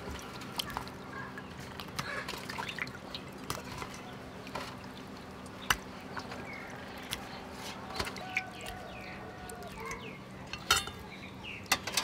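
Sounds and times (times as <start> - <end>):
water dripping: 0.0 - 10.7
small splashes in a tray of water: 1.6 - 8.9.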